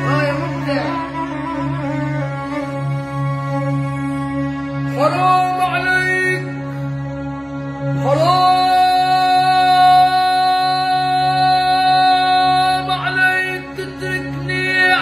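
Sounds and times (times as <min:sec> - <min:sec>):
violin: 0:00.0 - 0:15.0
boy singing: 0:08.0 - 0:15.0.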